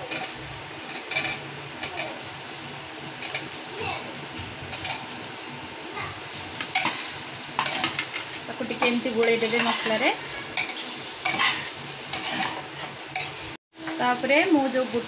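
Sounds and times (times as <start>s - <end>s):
oil sizzling: 0.0s - 15.0s
ladle scraping and clinking on pan: 6.5s - 13.5s.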